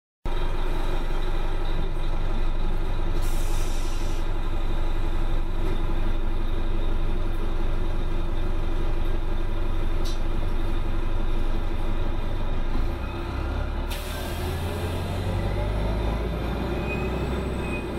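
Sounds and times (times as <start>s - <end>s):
bus diesel engine running: 0.3s - 17.9s
air hiss: 3.2s - 4.2s.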